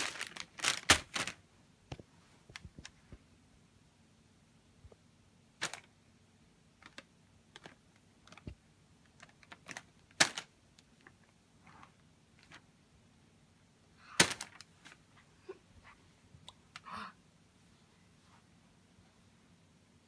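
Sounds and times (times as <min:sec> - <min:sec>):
wrapping paper crinkling: 0:00.0 - 0:01.4, 0:09.2 - 0:10.5.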